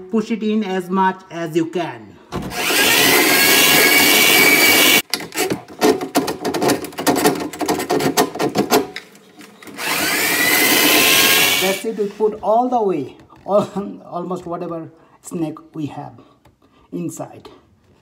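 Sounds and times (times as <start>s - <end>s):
drain auger motor whining: 2.5s - 5.0s, 9.6s - 11.9s.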